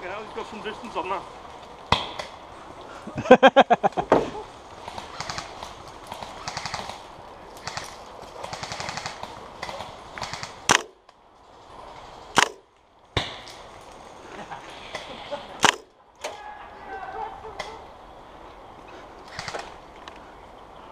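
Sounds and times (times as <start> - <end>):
sharp single cracks: 1.9 - 2.4, 4.9 - 11.2, 12.4 - 13.6, 14.9 - 16.4, 19.3 - 19.8
distant airsoft fire: 4.9 - 7.0, 7.6 - 11.0, 12.4 - 12.6, 15.6 - 15.9, 19.3 - 19.7
airsoft gun full-auto bursts: 5.0 - 5.6, 6.2 - 7.0, 7.6 - 10.9, 19.3 - 19.7.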